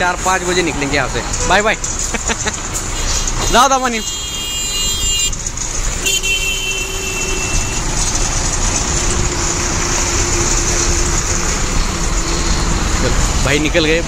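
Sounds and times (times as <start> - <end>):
truck horn blasts: 3.9 - 5.4, 6.0 - 8.0
diesel truck engine pulling away: 5.0 - 14.0.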